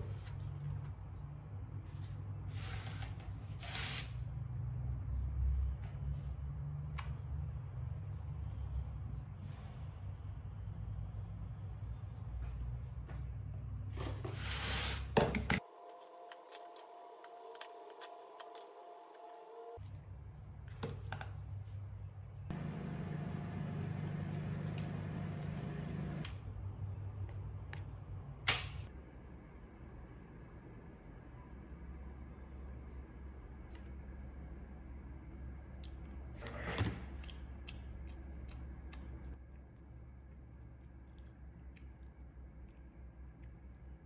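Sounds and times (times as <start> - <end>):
low machine hum: 21.9 - 36.5
chewing: 37.1 - 44.0.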